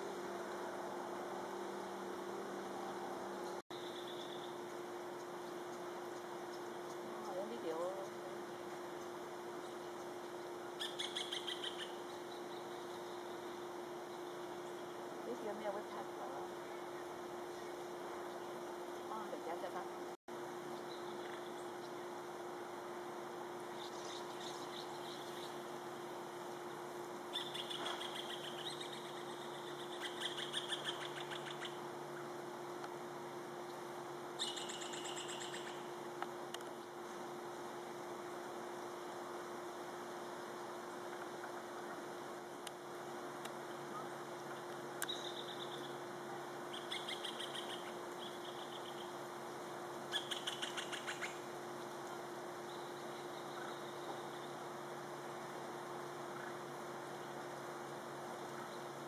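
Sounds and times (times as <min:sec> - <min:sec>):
woodpeckers chattering: 0:03.8 - 0:15.6, 0:26.7 - 0:32.3, 0:34.4 - 0:36.0, 0:43.7 - 0:49.2, 0:50.1 - 0:51.5
woodpecker harsh calls: 0:10.8 - 0:13.3, 0:27.3 - 0:31.8, 0:34.4 - 0:35.9, 0:46.7 - 0:49.2, 0:50.1 - 0:51.5.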